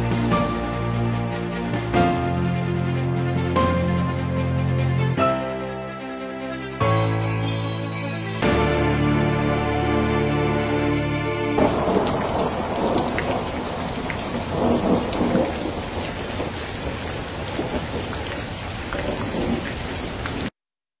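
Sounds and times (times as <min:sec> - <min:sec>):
orchestral music chord: 0:00.2 - 0:12.3
thunder rumbling: 0:11.6 - 0:20.4
heavy rain: 0:11.6 - 0:20.5.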